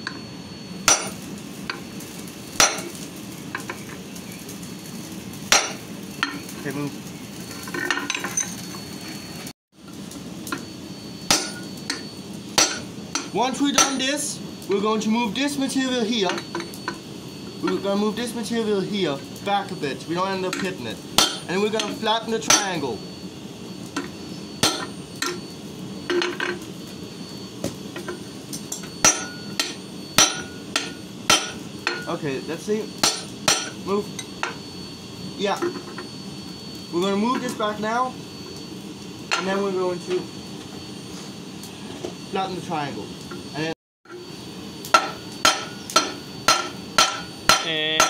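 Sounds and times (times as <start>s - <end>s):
hammer striking metal: 0.9s - 1.8s, 2.6s - 3.0s, 5.5s - 6.4s, 11.3s - 12.0s, 12.6s - 14.1s, 20.5s - 22.8s, 24.0s - 25.4s, 28.0s - 32.1s, 33.0s - 34.6s, 44.9s - 48.0s
hammer blows on metal: 44.9s - 48.0s.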